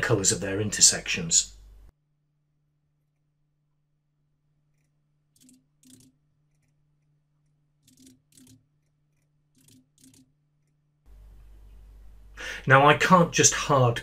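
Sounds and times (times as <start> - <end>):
faint low hum: 11.1 - 14.0.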